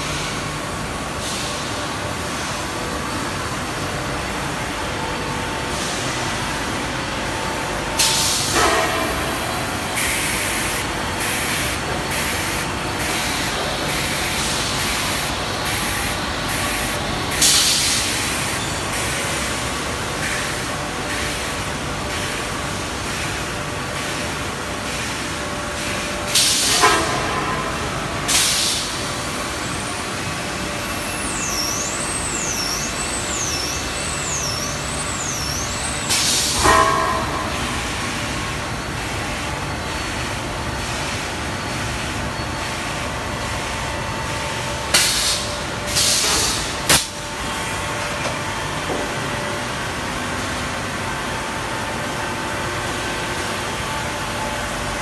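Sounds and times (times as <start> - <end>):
factory machine noise: 0.0 - 55.0
loud hissing venting blasts: 43.4 - 48.0.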